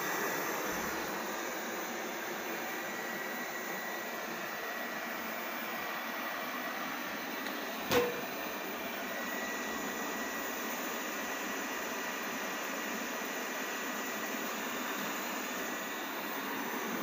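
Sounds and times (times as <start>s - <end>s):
robot vacuum whirring: 0.0s - 17.0s
bumper knocking metal shelf: 7.9s - 8.2s.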